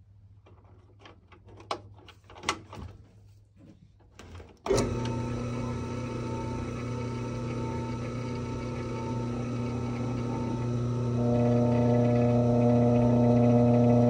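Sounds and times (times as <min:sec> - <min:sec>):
drill press motor running: 0:04.7 - 0:14.0.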